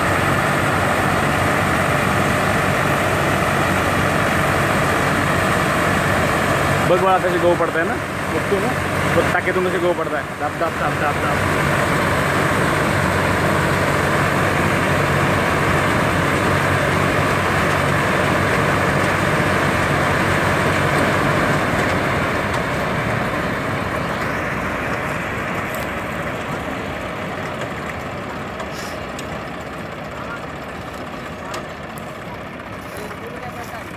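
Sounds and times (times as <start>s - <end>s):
combine harvester engine drone: 0.0s - 33.9s.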